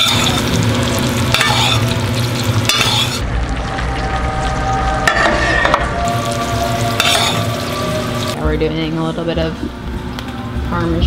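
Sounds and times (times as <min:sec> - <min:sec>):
metal spoon scraping a pan: 0:00.0 - 0:00.6, 0:01.2 - 0:03.2, 0:06.9 - 0:08.3
steak sizzling in a frying pan: 0:00.0 - 0:03.2, 0:06.1 - 0:08.4.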